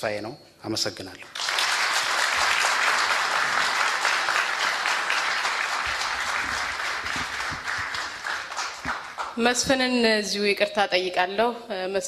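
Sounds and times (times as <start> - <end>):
audience applauding: 1.3 - 9.6.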